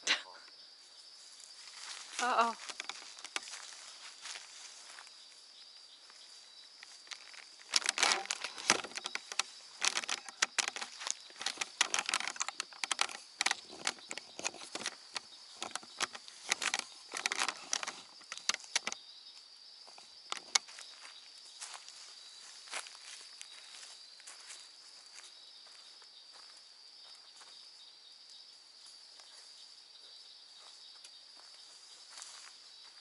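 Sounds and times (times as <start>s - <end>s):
night insects droning: 0.0s - 33.0s
footsteps crunching through dry leaves: 1.1s - 12.4s, 20.6s - 27.6s.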